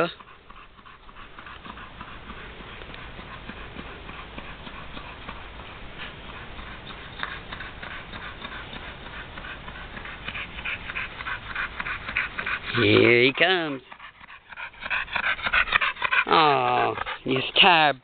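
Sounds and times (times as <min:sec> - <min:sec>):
dog panting: 0:00.0 - 0:18.0.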